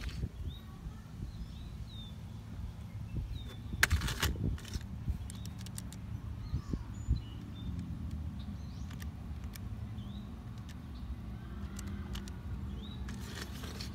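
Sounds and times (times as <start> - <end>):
calculator keys clicking: 3.8 - 6.0, 8.8 - 9.7, 10.4 - 10.8, 11.6 - 12.4
faint bird chirps: 5.1 - 9.0.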